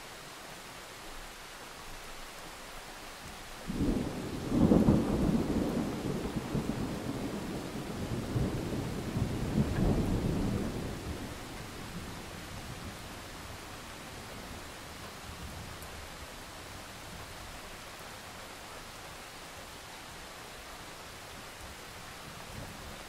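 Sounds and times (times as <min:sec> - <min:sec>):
steady hiss: 0:00.0 - 0:23.0
thunder rumbling: 0:03.7 - 0:13.8.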